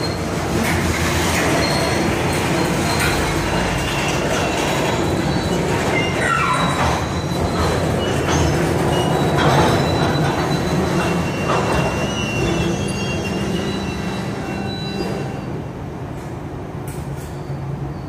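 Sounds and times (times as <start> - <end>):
train wheels rumbling on rail: 0.0 - 18.0
high wheel squeals: 1.2 - 15.7.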